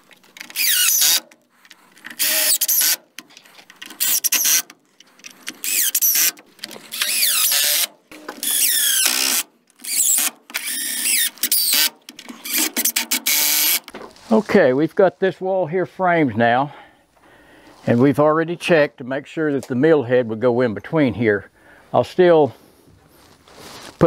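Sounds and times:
power drill driving screws: 0.4s - 1.4s, 2.0s - 3.1s, 3.8s - 13.9s.

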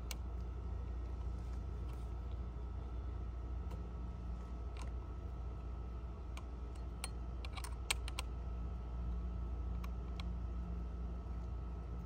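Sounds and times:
low steady rumble: 0.0s - 12.0s.

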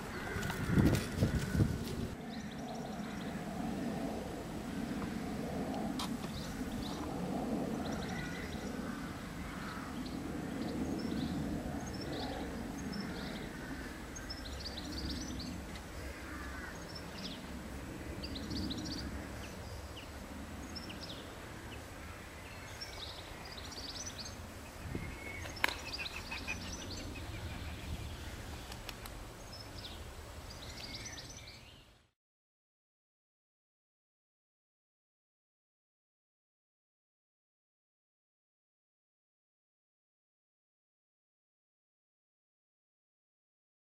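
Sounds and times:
small birds chirping: 22.4s - 32.1s.

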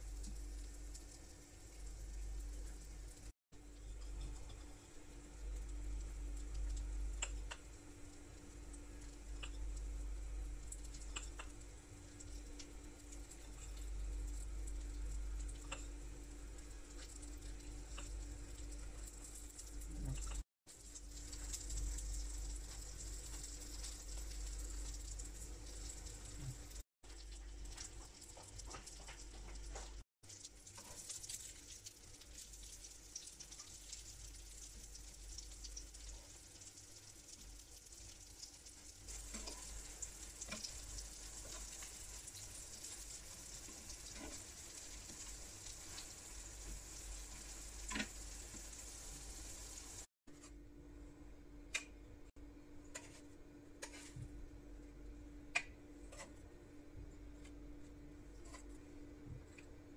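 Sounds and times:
aubergine slices sizzling in oil: 0.0s - 50.1s
tongs clicking against pan: 10.8s - 11.5s.

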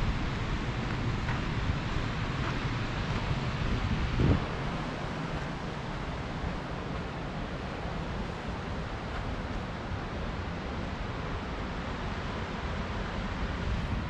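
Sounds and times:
low uneven rumbling: 0.0s - 9.7s
wind buffeting microphone: 0.0s - 10.2s, 12.8s - 14.0s
steady rushing hiss: 0.0s - 14.0s.

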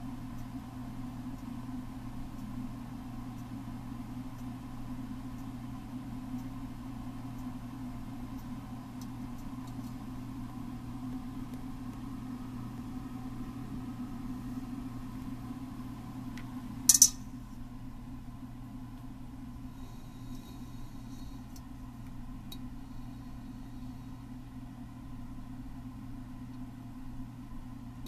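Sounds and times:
low background hum: 0.0s - 28.0s
sharp click: 16.9s - 17.2s.

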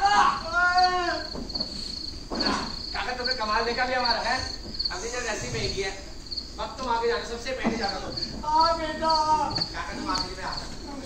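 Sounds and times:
cricket chirping: 0.0s - 11.0s
people talking: 2.4s - 6.0s, 6.6s - 11.0s.

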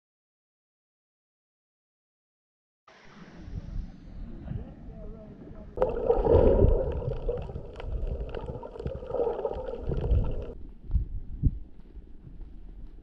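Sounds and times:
muffled underwater sloshing and bubbling: 5.4s - 10.6s.

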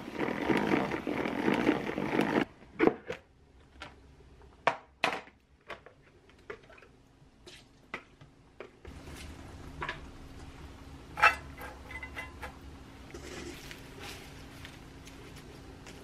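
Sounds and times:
steady low hum: 8.3s - 16.0s.

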